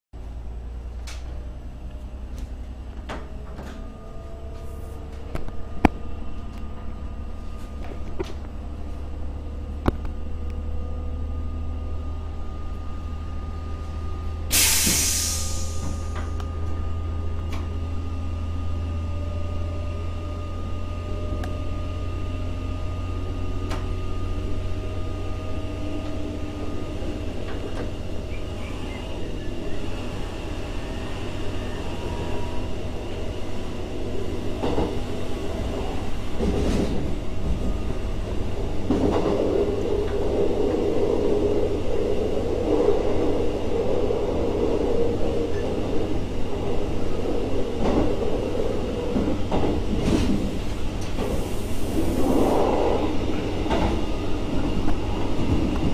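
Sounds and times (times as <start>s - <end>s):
low engine hum: 0.2s - 55.9s
compressed air hiss: 14.5s - 16.1s.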